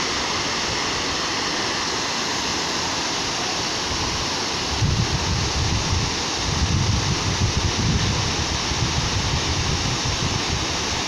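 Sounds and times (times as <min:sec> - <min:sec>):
waterfall rushing: 0:00.0 - 0:11.0
wind buffeting microphone: 0:04.6 - 0:11.0.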